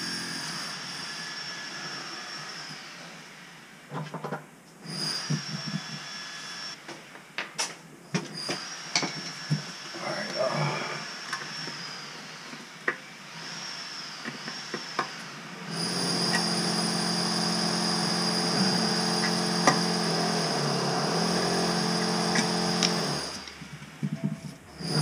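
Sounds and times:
handheld power tool running: 13.4s - 23.6s, 24.8s - 25.0s.

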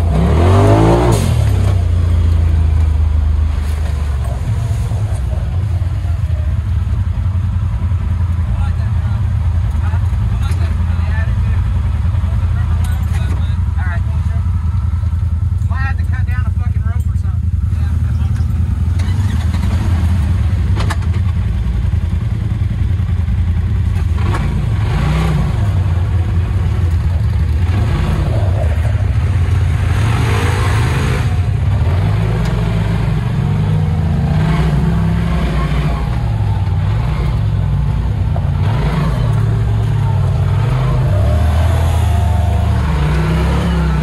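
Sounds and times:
engine revving under load: 0.0s - 6.8s, 23.0s - 44.0s.

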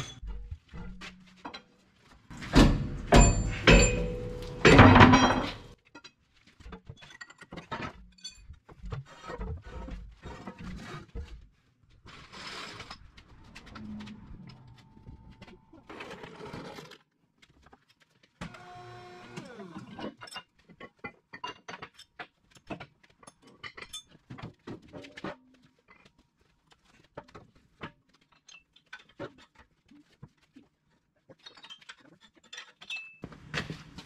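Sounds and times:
steel tools clinking: 3.1s - 5.8s.

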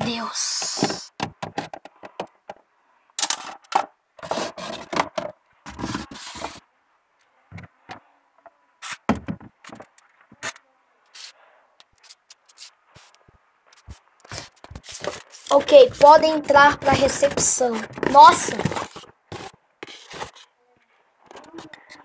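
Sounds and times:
objects being shifted: 3.2s - 6.6s
phone scraping on wooden shelf: 4.2s - 6.6s.

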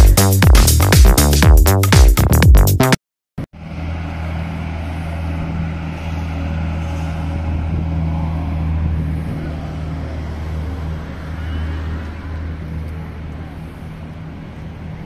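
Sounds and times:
electronic dance music: 0.0s - 3.0s
low engine hum: 3.6s - 15.0s
outdoor background noise: 3.6s - 15.0s.

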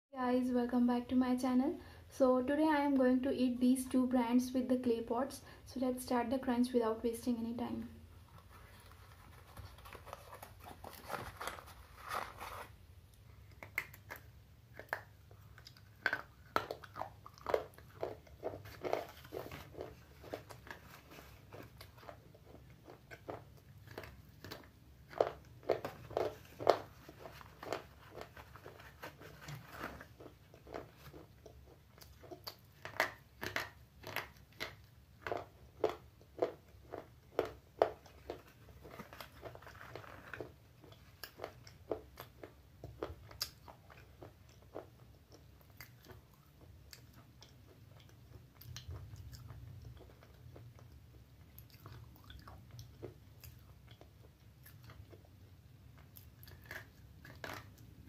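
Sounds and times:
slate pencils crunching in mouth: 13.4s - 55.3s.

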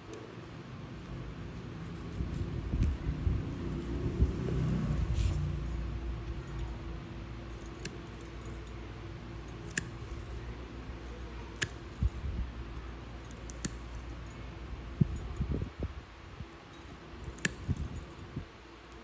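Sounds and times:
low background hum: 0.0s - 19.0s
nail nippers snipping: 7.6s - 8.6s, 9.5s - 10.5s, 11.2s - 12.2s, 13.2s - 14.0s, 17.2s - 18.0s.

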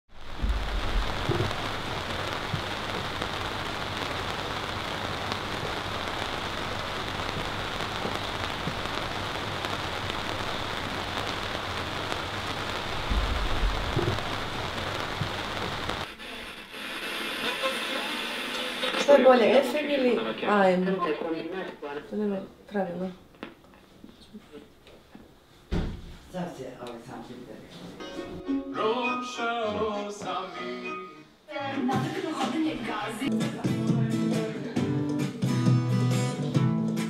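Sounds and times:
low rumbles: 0.1s - 16.0s
steady rain: 0.1s - 20.1s.

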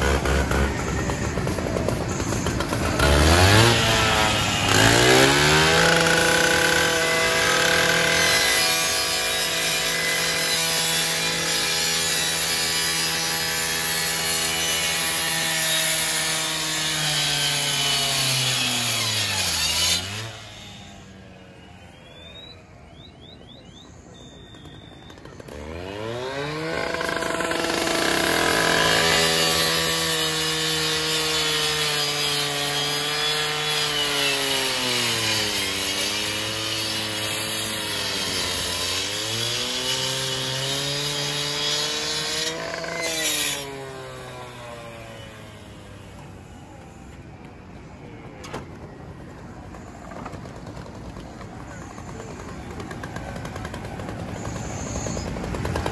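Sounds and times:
rotary saw cutting sheet metal: 0.0s - 21.3s, 25.4s - 46.2s.

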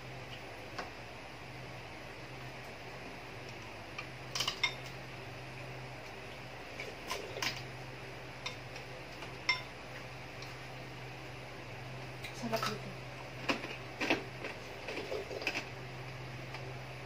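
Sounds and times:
steady low hum: 0.0s - 17.0s
metal spoon clinking against dishes: 4.3s - 4.9s, 9.4s - 9.7s.

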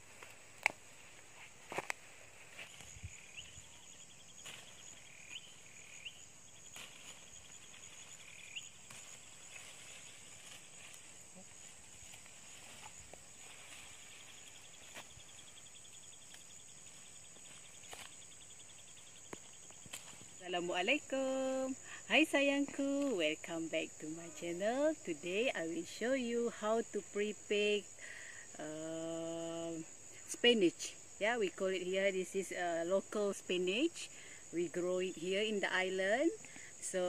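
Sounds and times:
pulsing insect trill: 0.0s - 37.0s
high-pitched insect drone: 2.6s - 30.1s.

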